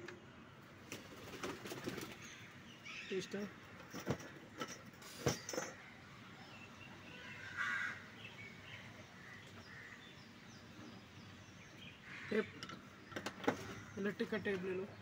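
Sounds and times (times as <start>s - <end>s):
faint outdoor background noise: 0.0s - 15.0s
bird calls: 5.1s - 15.0s.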